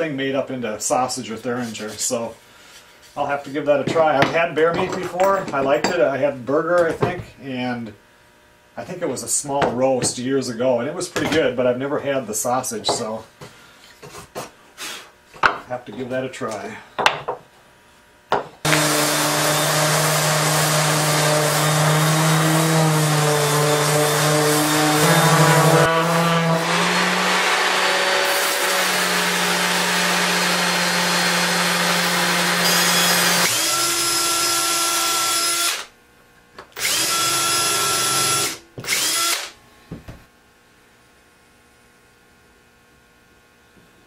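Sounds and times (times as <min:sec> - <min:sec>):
orbital sander on wood: 0:18.6 - 0:35.8, 0:36.8 - 0:39.4.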